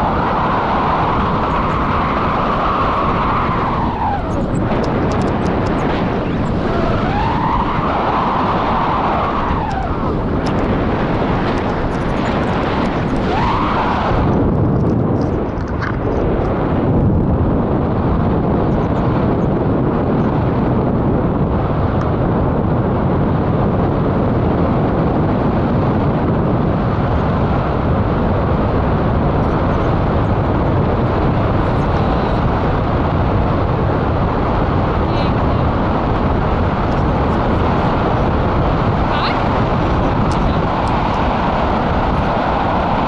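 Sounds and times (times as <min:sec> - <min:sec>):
wind buffeting microphone: 0:00.0 - 0:43.0.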